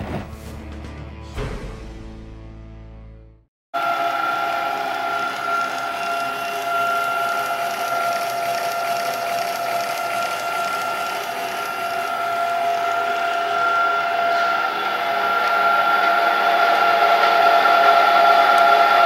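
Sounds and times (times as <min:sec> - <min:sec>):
machinery hum: 0:03.8 - 0:19.0
whining tones: 0:03.8 - 0:19.0.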